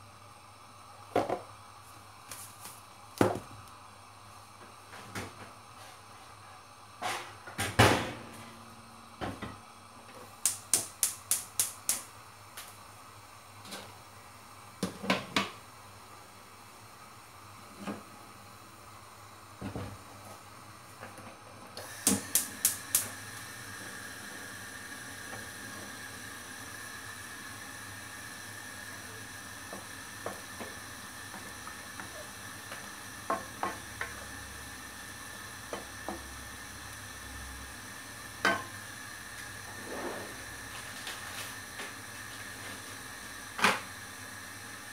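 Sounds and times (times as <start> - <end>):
pan simmering hiss: 0.0 - 44.9
wooden spoon clicking in wok: 10.4 - 12.1.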